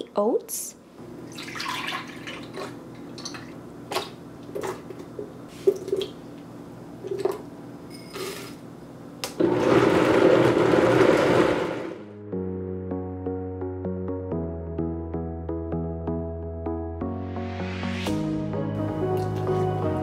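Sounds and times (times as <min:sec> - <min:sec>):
blender motor running: 0:09.4 - 0:12.0.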